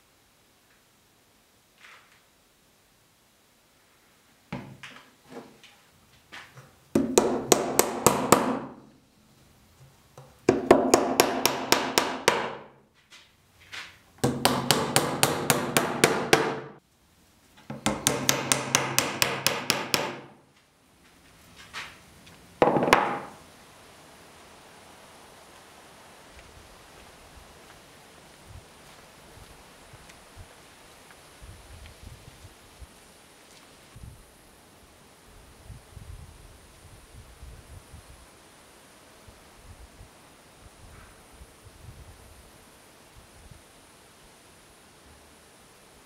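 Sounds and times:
hammer striking wood: 7.0 - 8.9, 10.4 - 12.8, 14.2 - 16.8, 17.7 - 20.4, 22.6 - 23.4.

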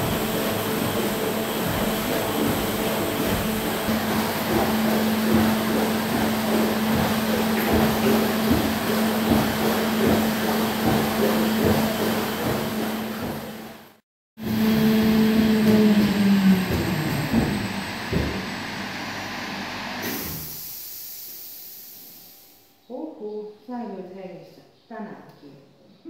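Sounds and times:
horse hooves knocking: 0.0 - 13.6
water washing: 0.0 - 13.9
treadmill motor hum: 0.0 - 20.0.

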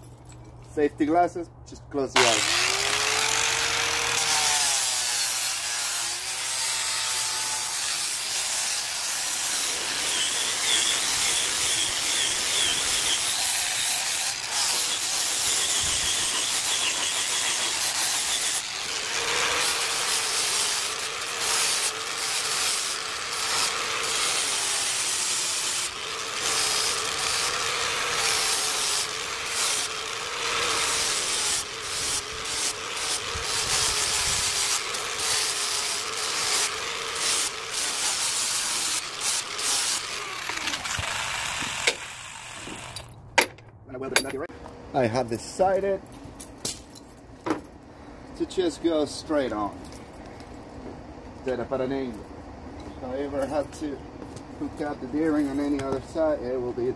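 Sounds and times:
angle grinder grinding steel: 2.2 - 43.2.

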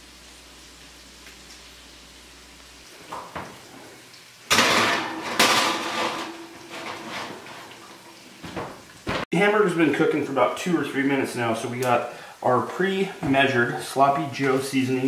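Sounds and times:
metal baking sheet clattering: 4.5 - 7.8.

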